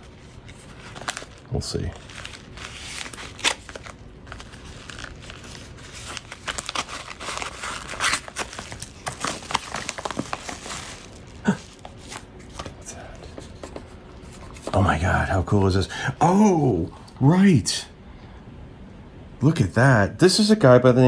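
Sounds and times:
paper envelope crinkling and tearing: 0.0s - 13.6s.

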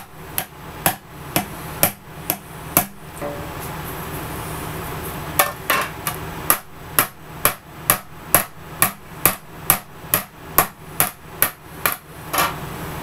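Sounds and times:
hammer striking metal plate: 0.0s - 3.5s, 6.5s - 12.6s.

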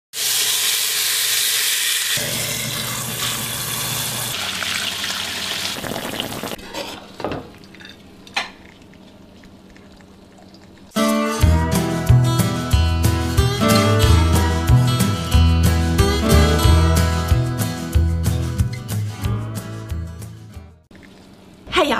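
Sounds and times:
meat sizzling in hot oil: 0.2s - 6.6s.

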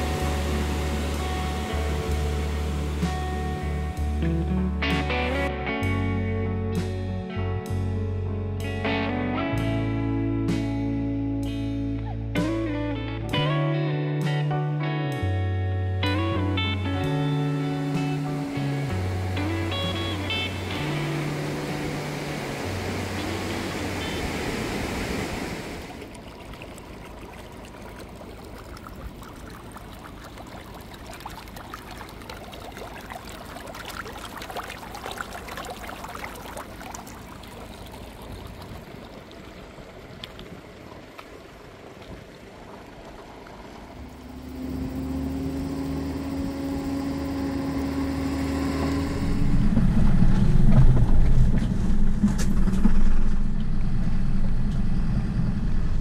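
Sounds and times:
river rushing: 0.0s - 5.5s, 17.4s - 50.7s
vehicle engine humming: 0.0s - 14.3s, 15.2s - 56.0s
tyres on gravel road: 16.2s - 56.0s.

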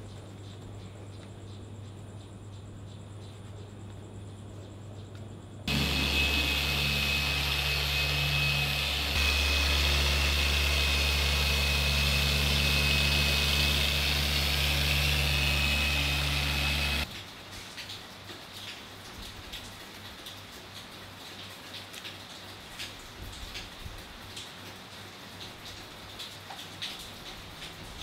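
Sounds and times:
machine polisher motor whine: 5.7s - 17.1s.

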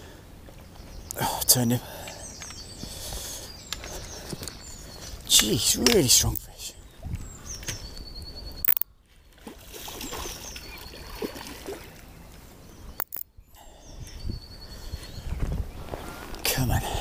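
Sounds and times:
water sloshing and splashing: 9.3s - 12.1s.

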